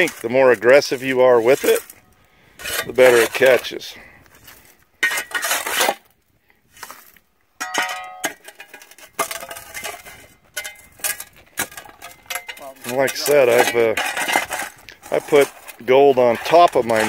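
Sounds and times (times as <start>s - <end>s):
shovel scraping gravelly ground: 0.0s - 17.0s
short metallic ring: 7.6s - 8.4s
stones clinking on metal: 7.6s - 17.0s.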